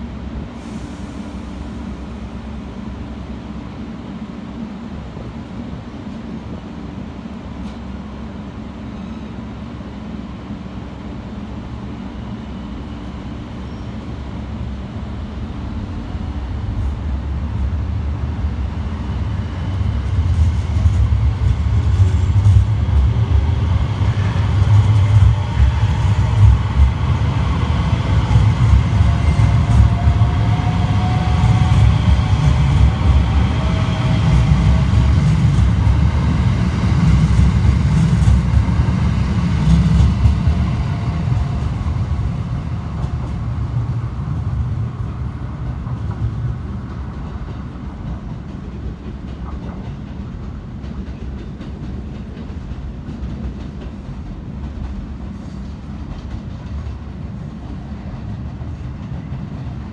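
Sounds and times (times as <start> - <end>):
train wheels rumbling on track: 0.0 - 59.9
train drive whine rising: 9.9 - 48.8.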